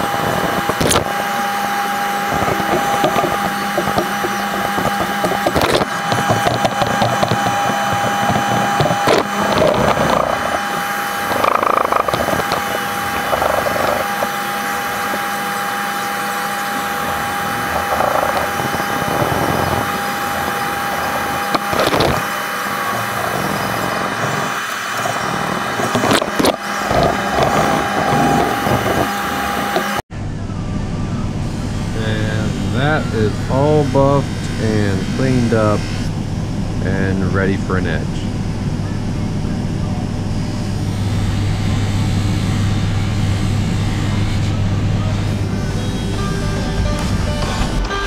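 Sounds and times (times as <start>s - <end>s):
steady hum: 0.0s - 48.0s
sandpaper rubbing on wood: 2.2s - 15.4s.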